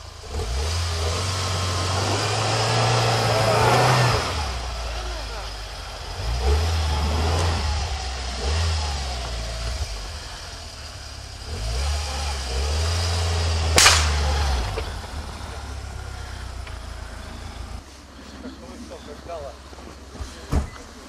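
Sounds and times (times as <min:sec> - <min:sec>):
off-road vehicle engine revving: 0:00.0 - 0:21.0
sharp crack: 0:13.6 - 0:15.6.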